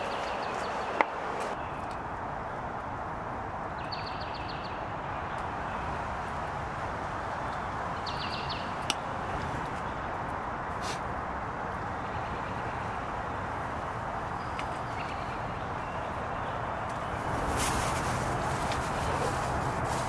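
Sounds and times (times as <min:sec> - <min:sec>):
rain on a tent: 0:16.9 - 0:20.0.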